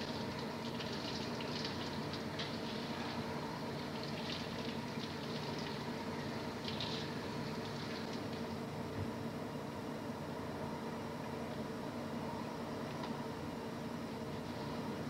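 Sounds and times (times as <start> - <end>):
water running from tap: 0.0 - 3.2, 3.8 - 8.4
steady hum: 0.0 - 15.0.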